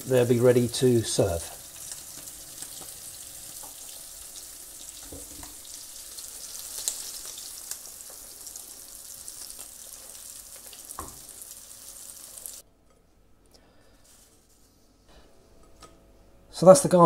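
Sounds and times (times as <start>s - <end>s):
fish sizzling in hot oil: 0.0s - 12.6s.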